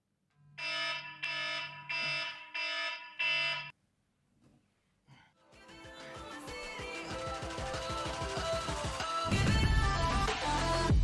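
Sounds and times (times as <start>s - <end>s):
alarm beeping: 0.6s - 3.7s
music: 5.4s - 11.0s.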